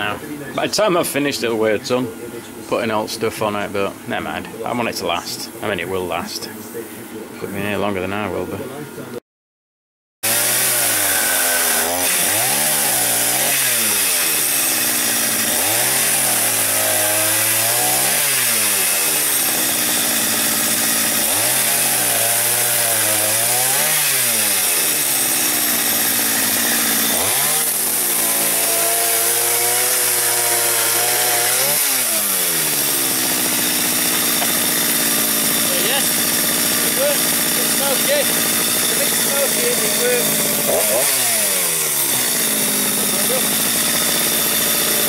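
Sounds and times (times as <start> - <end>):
chainsaw cutting a log: 10.2 - 45.0.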